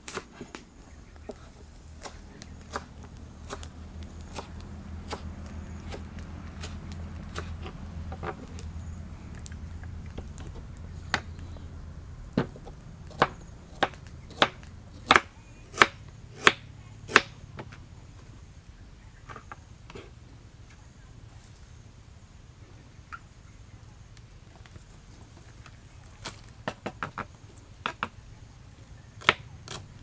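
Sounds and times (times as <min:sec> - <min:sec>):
knife chopping on wooden board: 0:02.0 - 0:06.0, 0:12.4 - 0:17.4.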